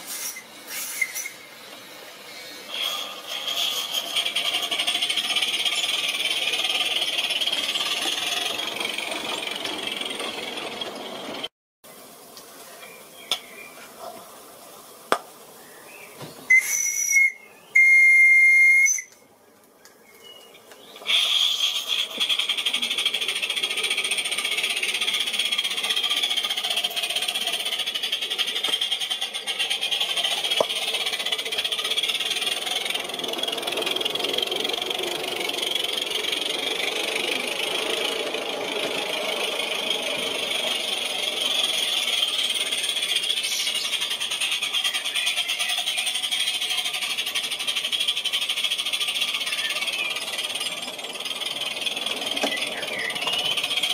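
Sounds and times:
escaping steam hissing: 0.0 - 11.5, 21.0 - 53.9
steam whistle blasts: 16.5 - 19.1.

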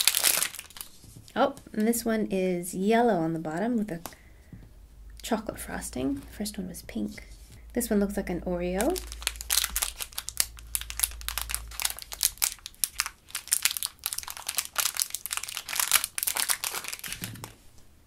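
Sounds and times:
plastic bag crinkling: 0.0 - 1.0, 8.7 - 17.7.

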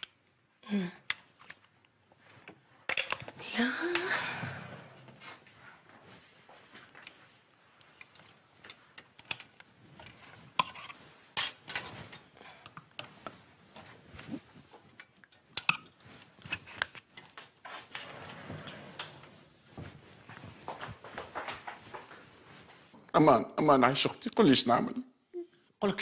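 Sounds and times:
fabric rustling: 1.5 - 23.0
clothes hangers clattering on rail: 11.4 - 12.3.

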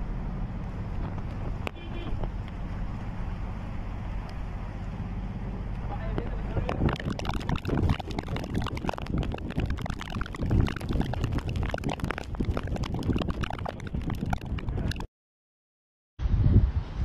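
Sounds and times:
wind rumble on microphone: 5.8 - 15.1, 16.2 - 17.0.

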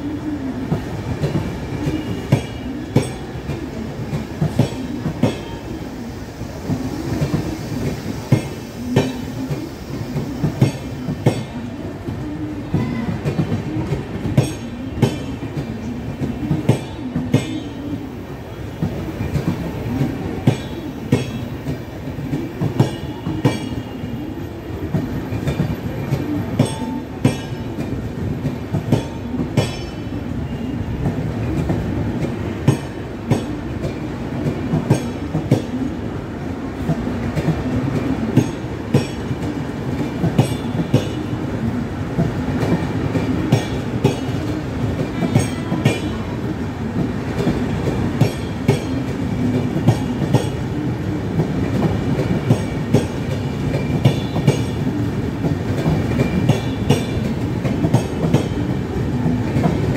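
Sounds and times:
train wheels rumbling on rail: 0.0 - 59.9
clickety-clack over rail joints: 0.5 - 5.6, 6.5 - 59.9.

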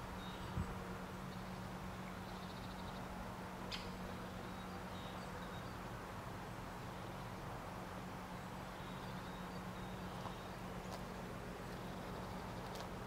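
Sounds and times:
low hum and hiss: 0.0 - 13.0
faint high bird chirps: 8.7 - 11.0.

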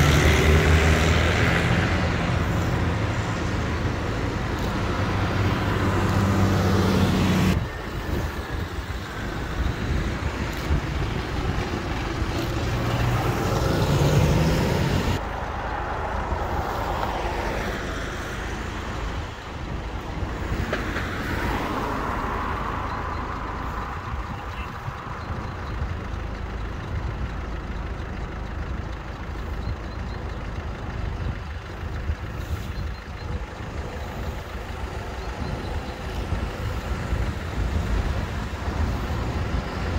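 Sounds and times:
engine rising in pitch: 0.0 - 19.2
cars passing with tyre noise: 0.0 - 39.9
tractor diesel engine passing: 0.0 - 39.9.

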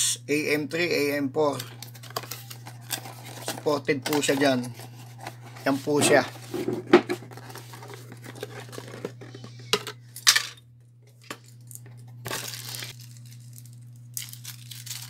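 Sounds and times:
steady low hum: 0.0 - 15.0
plastic bag rustling: 1.7 - 9.7, 12.2 - 15.0.

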